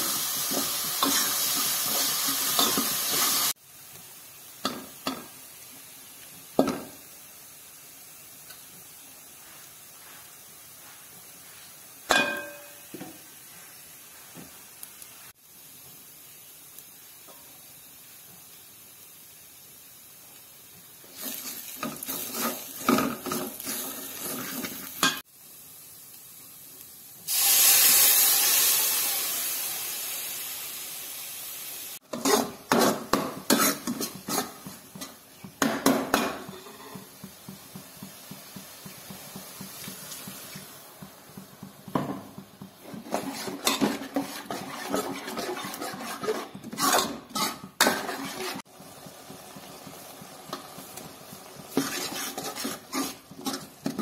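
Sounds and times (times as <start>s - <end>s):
loud sizzling hiss: 0.0s - 54.0s
ladle scraping metal pot: 32.1s - 35.2s, 42.8s - 48.6s, 51.7s - 54.0s.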